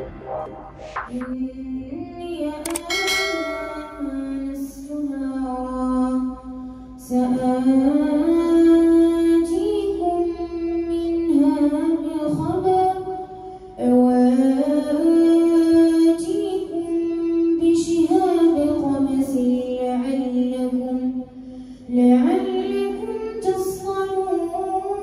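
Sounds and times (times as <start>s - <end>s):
boy chanting over loudspeaker: 21.9s - 25.0s.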